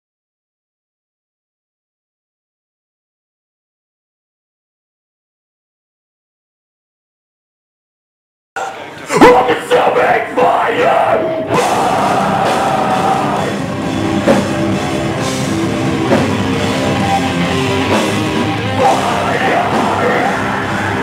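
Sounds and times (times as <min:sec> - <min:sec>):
screamed vocals: 0:08.6 - 0:13.6, 0:18.8 - 0:21.0
distorted electric guitar riffing: 0:08.6 - 0:21.0
drums: 0:08.6 - 0:21.0.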